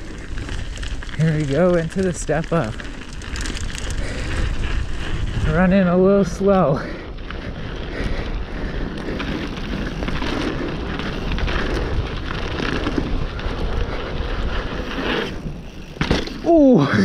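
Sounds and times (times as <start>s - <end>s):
wind rushing over microphone: 0.0s - 15.8s
bike tyres on dirt and gravel: 0.0s - 17.0s
bike knocks and rattles: 14.8s - 17.0s.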